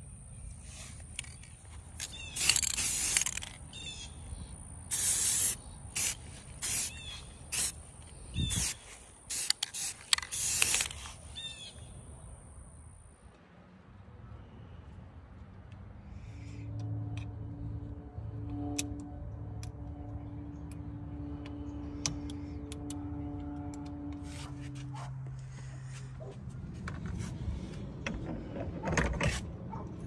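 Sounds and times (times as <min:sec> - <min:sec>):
spray can spraying bursts: 0:02.0 - 0:03.5, 0:04.9 - 0:07.8, 0:08.4 - 0:11.3
high-pitched whine: 0:16.6 - 0:24.9.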